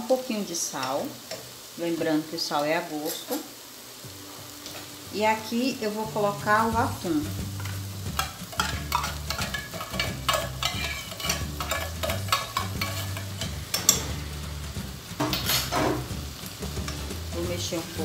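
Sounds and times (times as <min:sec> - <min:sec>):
vegetables sizzling: 0:00.0 - 0:18.0
metal spoon scraping tin can: 0:07.6 - 0:14.1.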